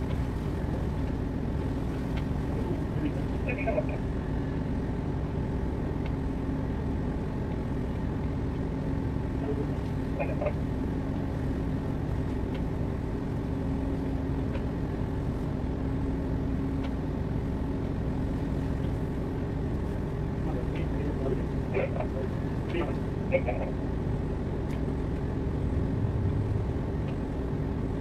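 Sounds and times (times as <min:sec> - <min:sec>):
ship engines rumbling and humming: 0:00.0 - 0:28.0.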